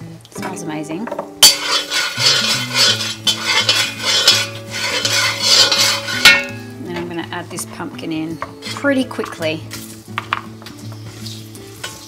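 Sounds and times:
spatula scraping spices in pan: 1.4 - 6.7, 8.4 - 10.1, 10.8 - 12.0.

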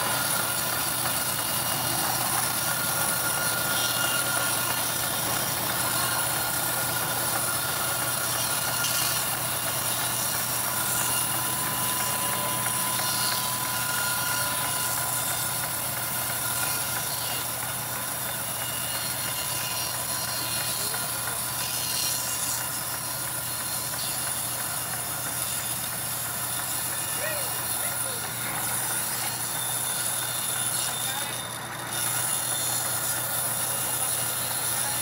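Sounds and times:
band saw cutting log: 0.0 - 35.0.

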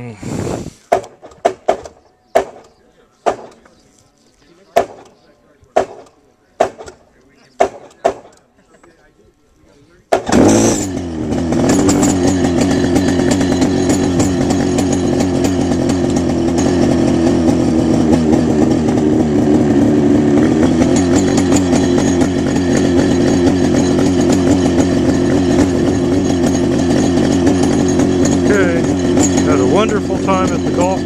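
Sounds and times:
helicopter engine buzzing: 10.2 - 31.0.

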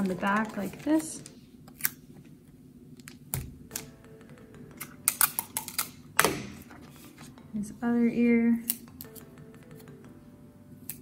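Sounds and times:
paper bag rustle: 0.0 - 1.4
paper and tape crinkling: 0.0 - 2.0.

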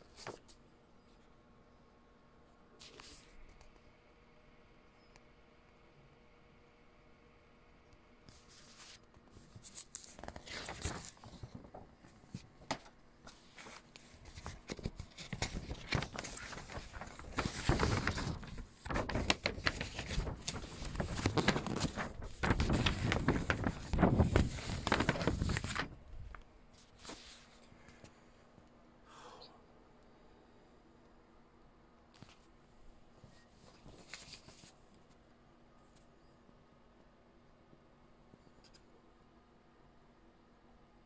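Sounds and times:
paper rustling and crackling: 0.0 - 0.6, 8.3 - 28.0, 33.2 - 35.1.

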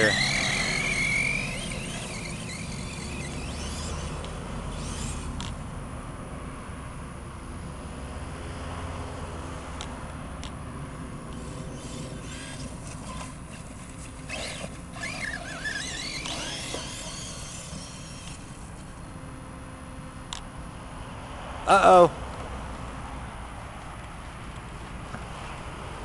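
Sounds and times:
electric motor whining: 0.0 - 5.7, 11.3 - 19.1
outdoor noise: 0.0 - 26.0.

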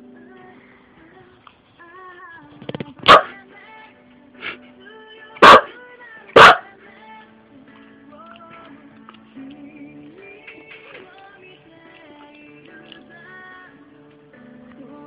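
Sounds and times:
background music: 0.0 - 15.0
dog barking: 3.0 - 3.4, 5.4 - 5.8, 6.4 - 6.7
dog yipping: 3.0 - 3.4, 5.4 - 5.7, 6.4 - 6.7.

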